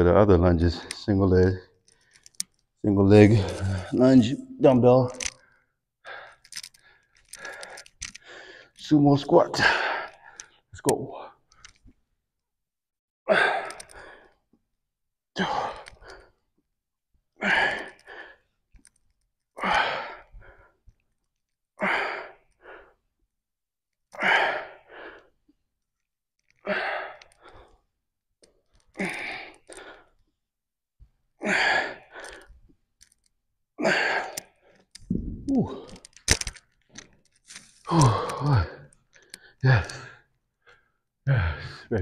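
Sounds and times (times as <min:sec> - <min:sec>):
man breathing hard: 0:05.4 - 0:08.8, 0:31.4 - 0:32.6.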